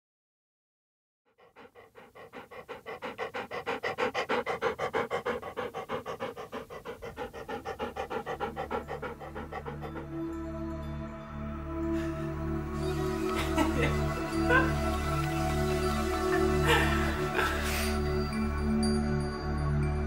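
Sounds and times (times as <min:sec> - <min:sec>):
dog panting fast: 0:01.4 - 0:10.5, 0:13.2 - 0:18.5
soft music: 0:01.5 - 0:20.0.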